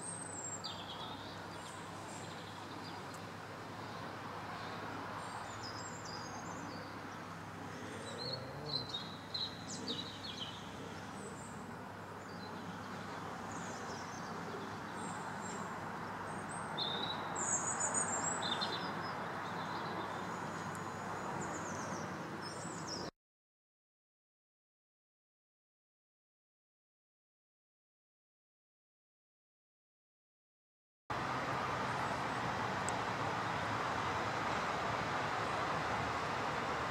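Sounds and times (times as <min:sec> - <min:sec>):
small birds chirping: 0:00.0 - 0:23.1.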